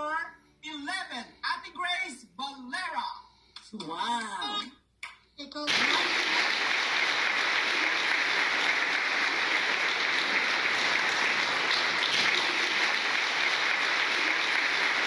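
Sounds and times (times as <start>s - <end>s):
dense applause: 5.7s - 15.0s.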